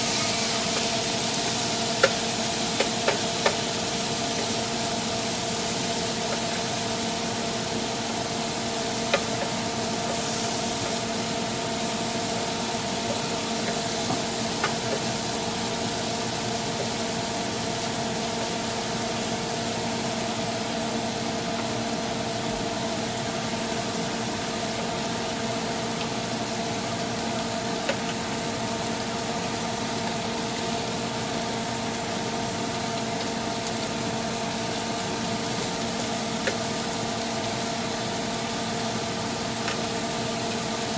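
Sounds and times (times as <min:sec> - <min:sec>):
shrimp sizzling in butter: 0:00.0 - 0:20.7, 0:23.4 - 0:40.9
wooden spoon knocking on pan: 0:02.8 - 0:03.6, 0:09.1 - 0:10.2, 0:13.1 - 0:15.1.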